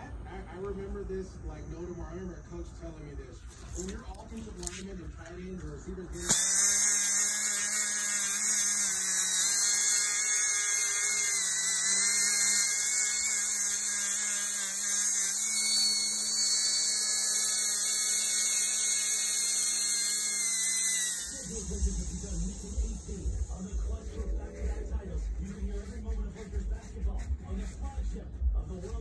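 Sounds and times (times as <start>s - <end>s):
disc sander whining on metal: 6.2s - 27.1s.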